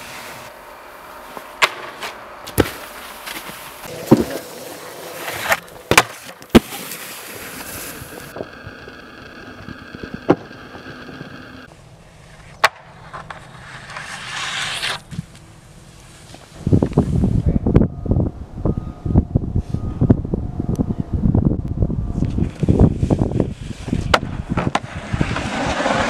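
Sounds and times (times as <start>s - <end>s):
board scraping over packed snow: 2.5s - 11.7s, 13.0s - 15.3s, 22.4s - 26.0s
board clacking on landing: 7.5s - 11.7s.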